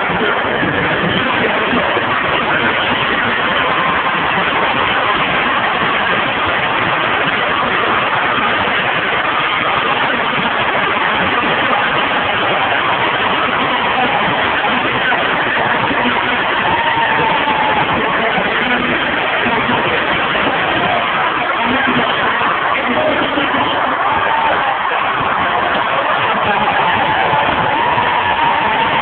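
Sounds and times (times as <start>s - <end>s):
stadium crowd cheering: 0.0s - 29.0s.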